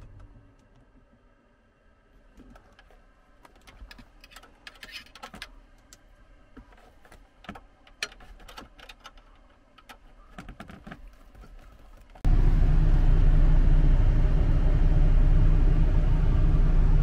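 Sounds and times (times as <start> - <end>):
plastic trim clicking and rattling: 7.0 - 11.6.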